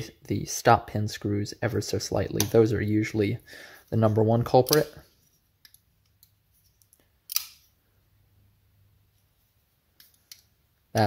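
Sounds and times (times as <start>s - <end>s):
folding knife metallic clicks: 7.3s - 7.6s.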